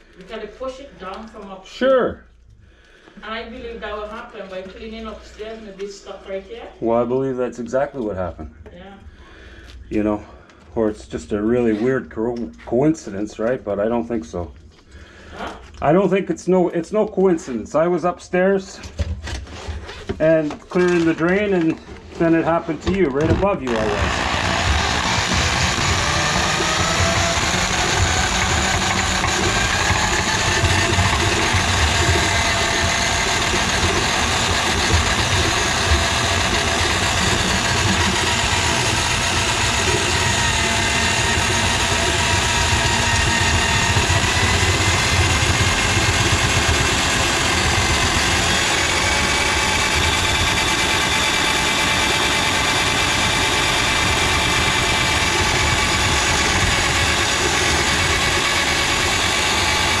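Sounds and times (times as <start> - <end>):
drain auger motor whining: 20.8 - 60.0.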